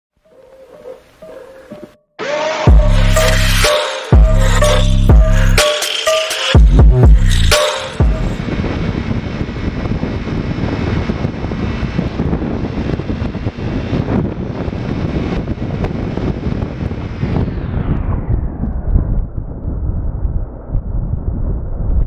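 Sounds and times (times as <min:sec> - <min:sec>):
motorcycle engine and road rumble: 0:07.1 - 0:22.0
wind rush: 0:07.9 - 0:22.0.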